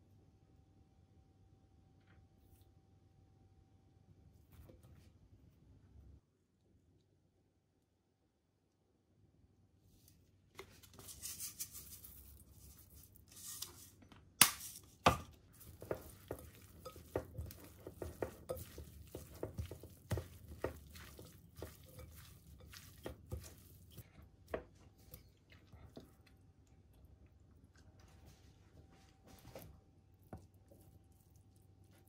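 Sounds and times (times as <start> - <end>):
hands kneading wet leaves: 9.9 - 32.0.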